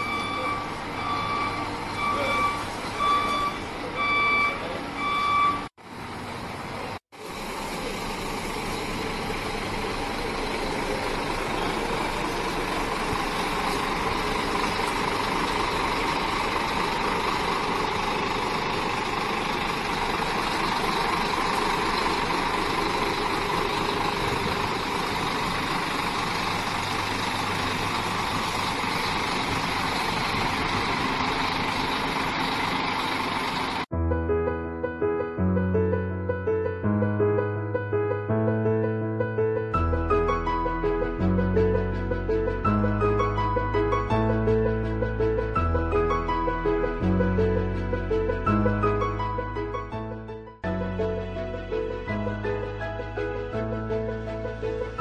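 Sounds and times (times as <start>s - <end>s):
reversing alarm beeping: 0.0s - 5.7s
coach diesel engine running: 0.0s - 33.9s, 40.0s - 55.0s.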